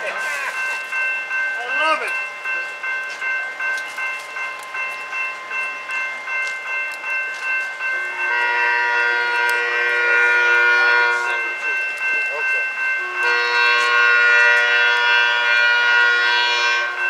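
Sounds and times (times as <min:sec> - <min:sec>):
warning bell ringing: 0:00.0 - 0:17.0
train horn blast: 0:08.1 - 0:11.4, 0:13.0 - 0:17.0.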